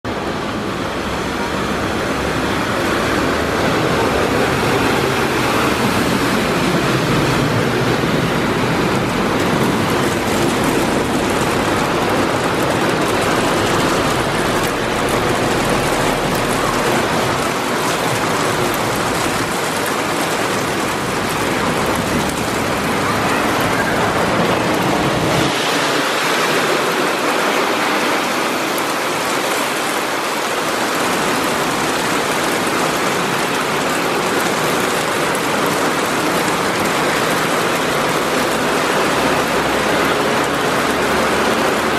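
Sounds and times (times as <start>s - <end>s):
rain: 0.0s - 41.9s
vehicles driving through floodwater: 0.0s - 41.9s.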